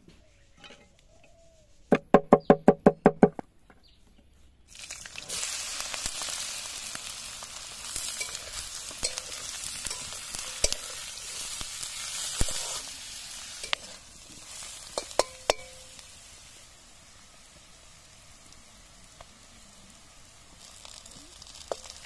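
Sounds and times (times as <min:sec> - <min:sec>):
meat and onions sizzling in wok: 0:04.7 - 0:22.0
metal spatula clinking on pan: 0:08.1 - 0:11.1, 0:14.9 - 0:16.0.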